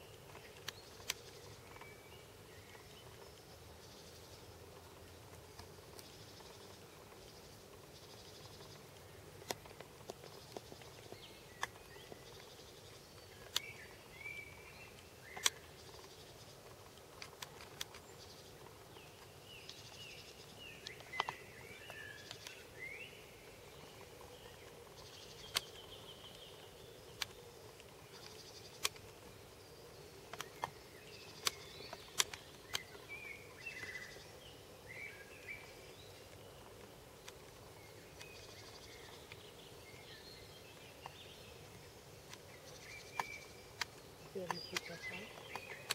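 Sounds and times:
birds chirping: 0.0s - 45.9s
faint steady hum: 0.0s - 45.9s
sharp clicks: 0.2s - 1.9s, 8.5s - 13.9s, 15.0s - 20.2s, 20.8s - 22.6s, 23.9s - 26.5s, 27.1s - 29.3s, 30.2s - 33.1s, 41.0s - 45.9s.

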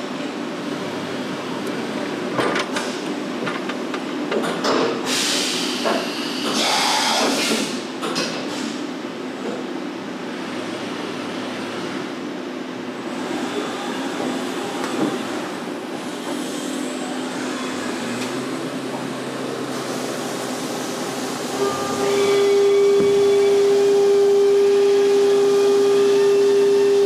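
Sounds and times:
machine mechanical drone: 21.2s - 27.0s.

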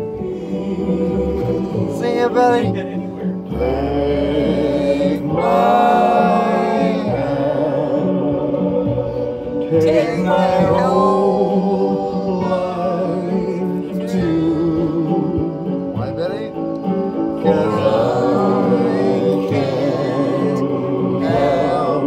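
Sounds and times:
person singing with music: 0.0s - 22.0s.

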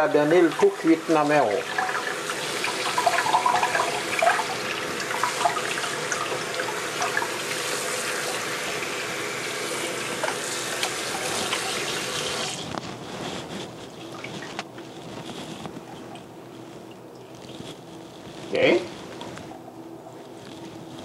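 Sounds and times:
faucet running into sink: 0.1s - 12.6s.

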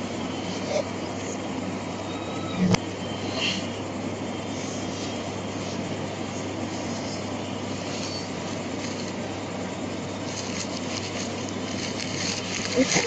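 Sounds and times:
low hum: 0.0s - 13.0s
rushing background noise: 0.0s - 13.0s.

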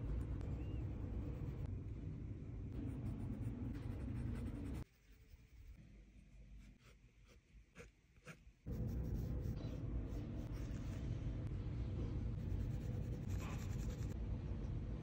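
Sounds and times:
steady low rumble: 0.0s - 4.9s, 8.7s - 15.0s
pencil scratching on paper: 2.9s - 5.8s, 6.6s - 11.0s, 12.4s - 14.2s.

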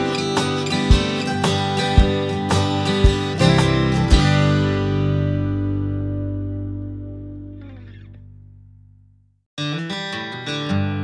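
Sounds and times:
guitar chord strummed: 0.0s - 8.8s.

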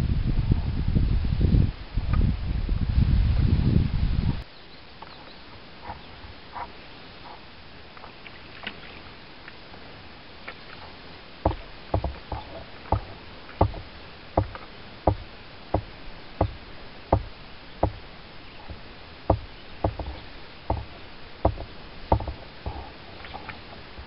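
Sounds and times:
basket knocking against tripod: 11.5s - 13.8s, 14.4s - 16.6s, 17.2s - 18.0s, 18.7s - 22.8s.

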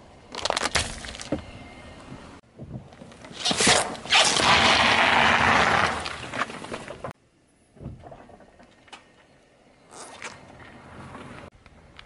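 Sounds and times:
plastic bottle cracking: 0.3s - 1.4s.

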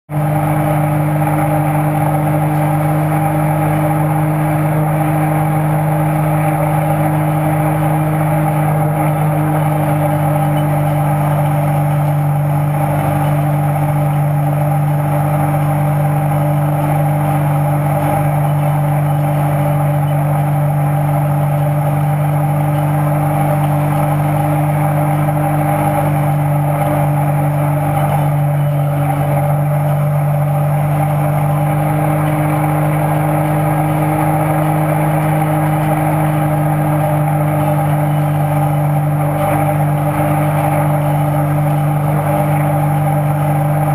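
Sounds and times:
boat engine running: 0.0s - 43.9s.

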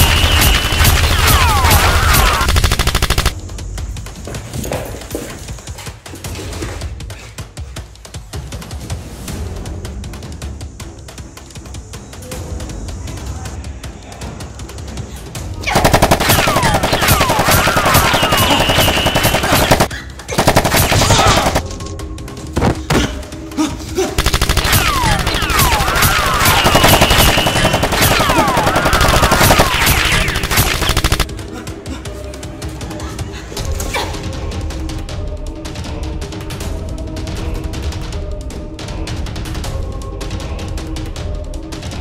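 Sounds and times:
rapid automatic gunfire: 0.0s - 3.4s, 15.7s - 21.7s, 24.2s - 31.3s.

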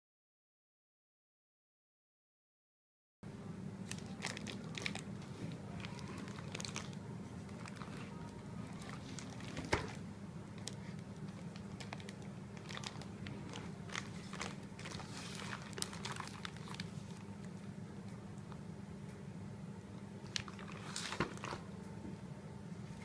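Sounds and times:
steady low hum: 3.2s - 23.0s
plastic bag crinkling: 3.8s - 10.0s, 10.6s - 17.3s, 20.2s - 21.7s.

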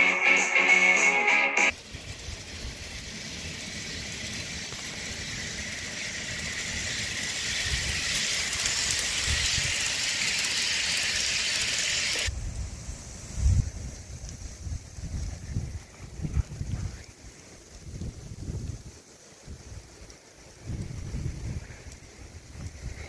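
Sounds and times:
model train wheels rattling on rails: 1.7s - 12.3s
wind thumping microphone: 12.3s - 17.1s.

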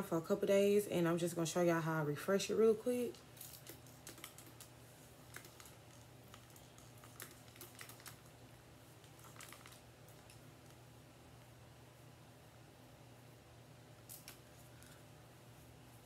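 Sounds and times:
low steady room hum: 0.0s - 16.0s
comb crackling through hair: 2.3s - 11.6s, 13.9s - 16.0s.

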